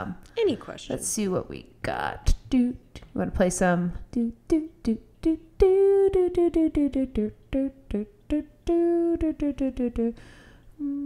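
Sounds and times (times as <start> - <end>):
woman humming: 4.2 - 11.0.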